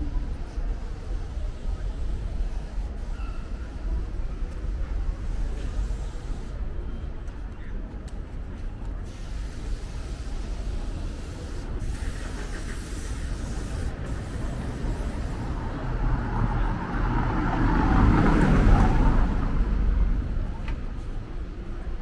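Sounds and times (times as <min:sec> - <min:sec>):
city traffic rumble: 0:00.0 - 0:22.0
vehicle passing close by: 0:14.5 - 0:20.2.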